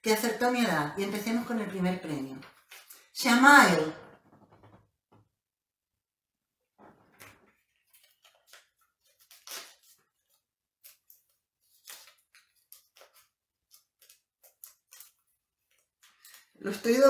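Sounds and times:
paper crinkling and rustling: 2.4 - 3.1, 6.8 - 17.0.

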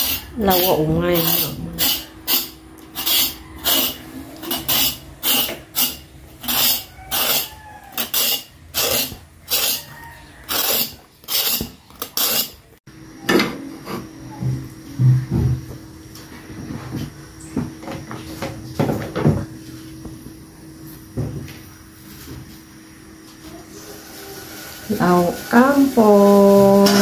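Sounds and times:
knife scraping vegetable skin: 0.0 - 12.7.

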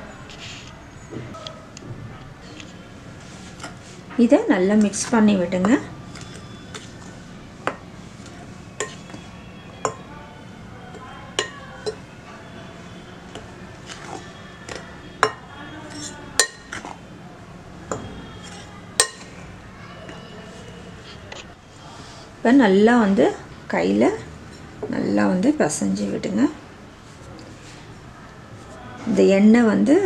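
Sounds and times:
spoon clinking on glass bowl: 8.8 - 9.2, 9.8 - 10.1, 11.3 - 12.0, 14.1 - 16.9, 17.9 - 19.3.

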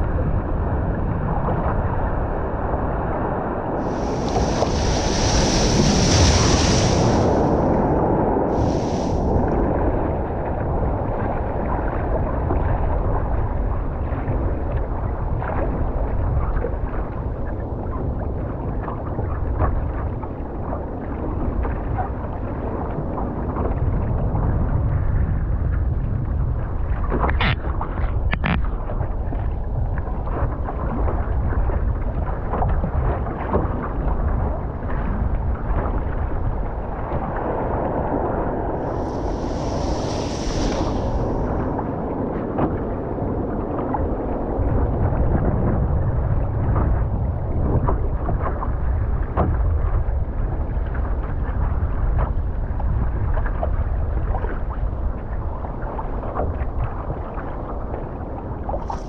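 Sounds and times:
wind buffeting microphone: 0.0 - 59.0
water sloshing against hull: 3.8 - 7.9, 13.6 - 59.0
brief high hiss: 3.9 - 7.6, 38.9 - 41.6.

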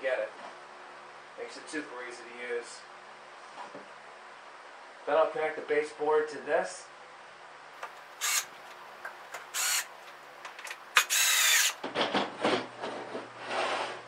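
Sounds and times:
electric drill driving screws: 8.2 - 8.6, 9.4 - 9.9, 11.0 - 11.8.

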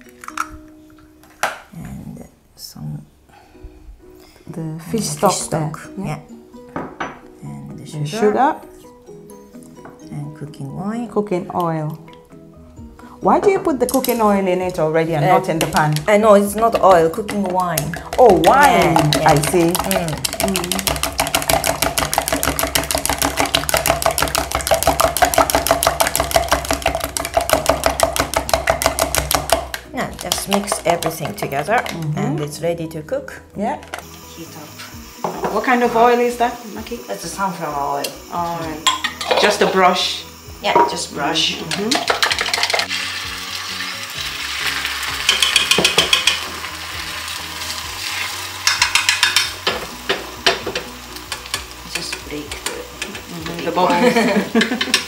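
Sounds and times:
egg sizzling in a pan: 15.1 - 32.0, 33.9 - 55.0
chopsticks clicking against plastic jug: 17.5 - 23.2.

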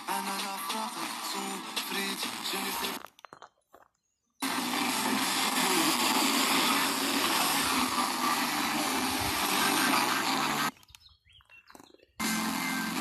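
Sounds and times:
faint radio programme: 0.0 - 3.0, 4.4 - 10.8, 12.2 - 13.0
radio static hiss: 0.0 - 3.0, 4.4 - 10.7, 12.2 - 13.0.

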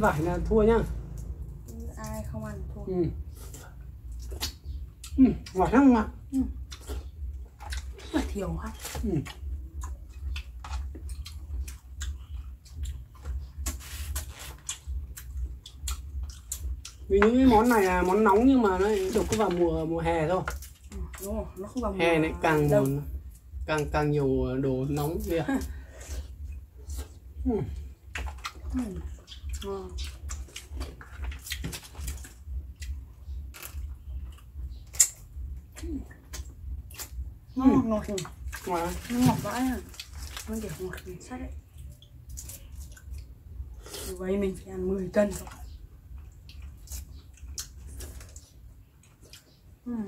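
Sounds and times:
chewing sounds: 0.0 - 24.2, 24.8 - 49.9
low rumble: 0.0 - 48.9
steady low hum: 0.0 - 50.0
lychee shells cracking: 30.2 - 37.2.

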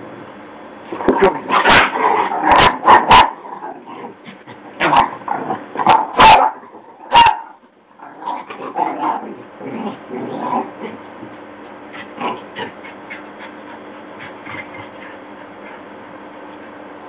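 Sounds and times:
dogs growling: 1.0 - 7.1, 8.0 - 15.9
dogs barking: 1.5 - 3.8, 4.8 - 9.2.

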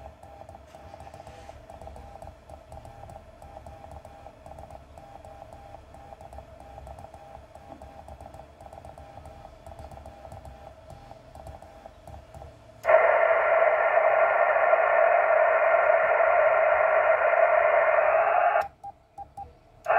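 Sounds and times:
receiver hiss: 12.8 - 18.8.

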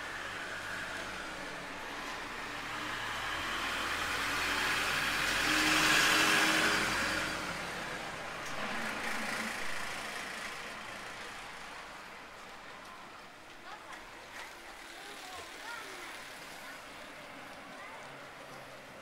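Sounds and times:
vehicle passing by: 0.0 - 12.5.

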